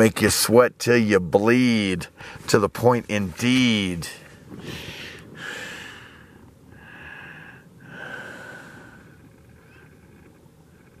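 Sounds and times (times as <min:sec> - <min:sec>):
man breathing noisily: 0:02.2 - 0:02.5, 0:04.4 - 0:09.4.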